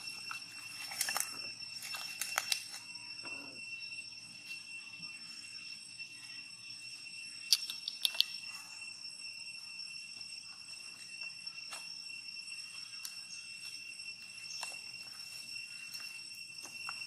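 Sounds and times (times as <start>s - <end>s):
high-pitched insect drone: 0.0s - 17.0s
sharp clicks: 7.5s - 8.4s.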